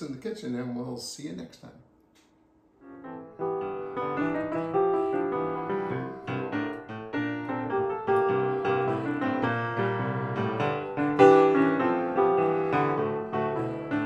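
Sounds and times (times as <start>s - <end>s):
piano music: 2.8s - 14.0s.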